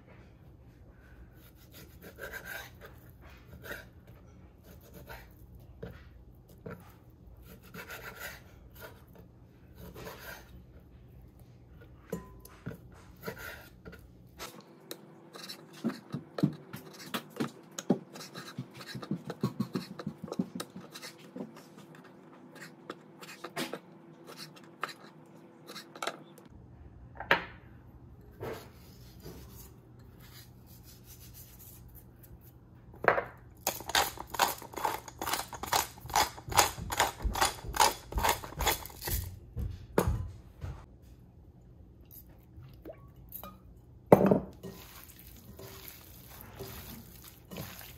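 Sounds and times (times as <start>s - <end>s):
pepper mill grinding: 33.6s - 39.3s.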